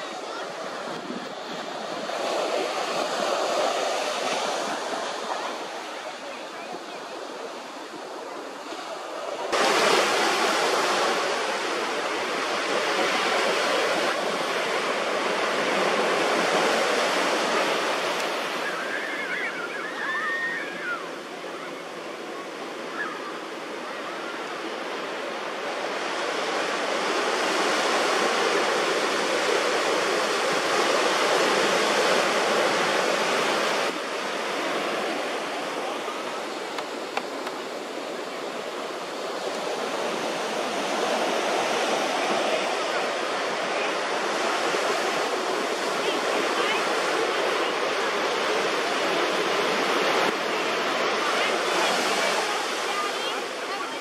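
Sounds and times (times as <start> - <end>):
ocean surf breaking: 0.0 - 54.0
faint high-pitched calls: 18.6 - 21.8.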